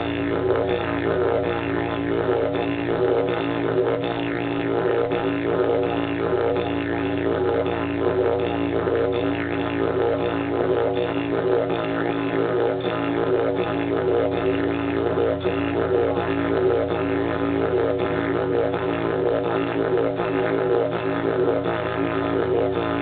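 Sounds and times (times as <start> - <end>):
didgeridoo drone: 0.0 - 23.0.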